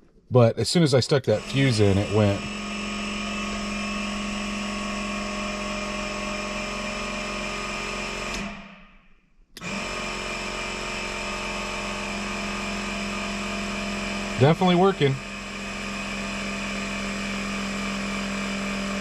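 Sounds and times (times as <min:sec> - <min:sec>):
air compressor motor hum: 0:01.3 - 0:08.8, 0:09.6 - 0:19.0.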